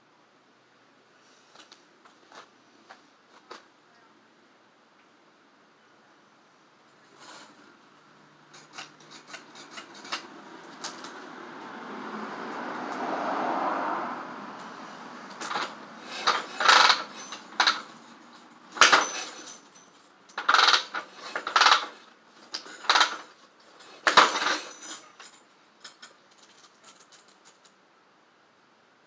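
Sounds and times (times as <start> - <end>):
motorcycle kick-start strokes: 15.4 - 17.9, 20.4 - 23.3.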